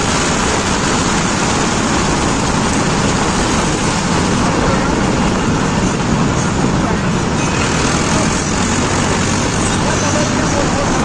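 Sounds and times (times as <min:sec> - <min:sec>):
steady rushing noise: 0:00.0 - 0:11.0
tractor engine running: 0:00.0 - 0:11.0.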